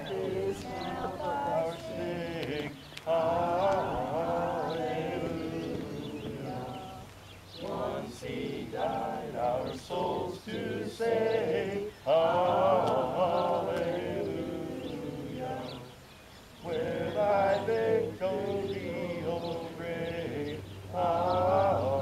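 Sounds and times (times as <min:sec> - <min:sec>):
congregation reciting in unison: 0:00.0 - 0:22.0.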